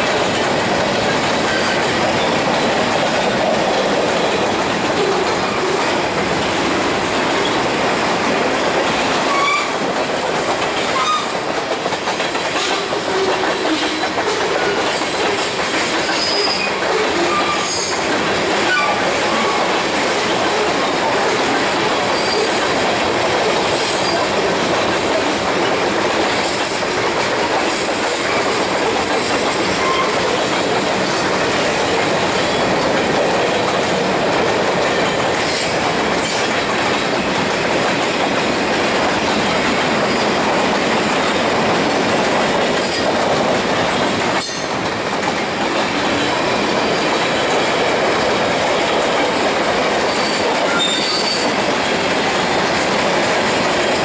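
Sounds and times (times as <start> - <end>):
train wheels clattering on rails: 0.0 - 54.0
wheel squeals: 50.2 - 51.6.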